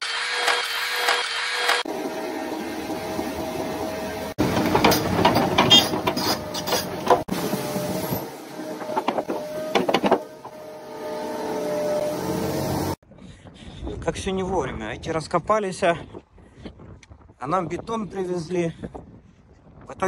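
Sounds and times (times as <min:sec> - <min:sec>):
machinery humming: 0:00.0 - 0:13.0
machinery clanks and knocks: 0:04.4 - 0:10.7.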